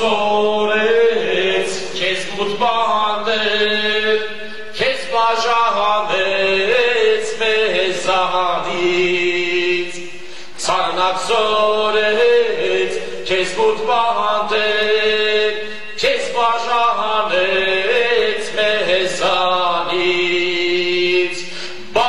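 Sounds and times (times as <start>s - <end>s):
man singing a slow melody: 0.0s - 22.0s.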